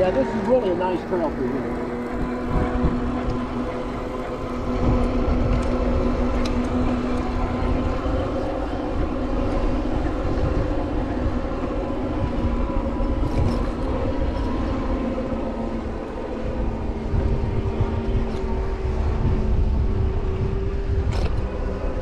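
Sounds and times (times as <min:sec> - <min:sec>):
electric motor whine: 0:00.0 - 0:22.0
tyres and wind rumble: 0:00.0 - 0:22.0.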